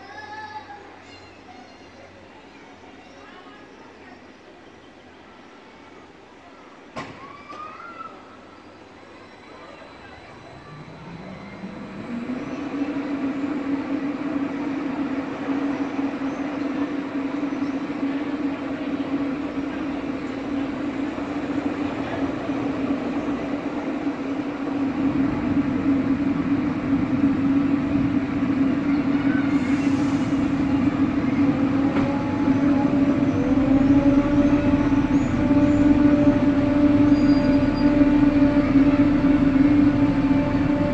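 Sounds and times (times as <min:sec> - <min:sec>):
electric train hum: 0:08.2 - 0:40.9
high whining tones: 0:09.5 - 0:16.3, 0:24.4 - 0:40.9
deep rumble: 0:18.9 - 0:40.9.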